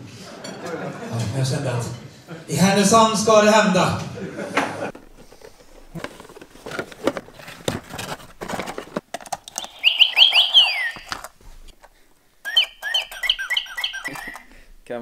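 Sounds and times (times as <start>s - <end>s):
toy rustling and clicking: 9.0s - 11.4s, 12.4s - 14.5s
electronic toy bird tweets: 9.6s - 11.2s, 12.4s - 14.5s.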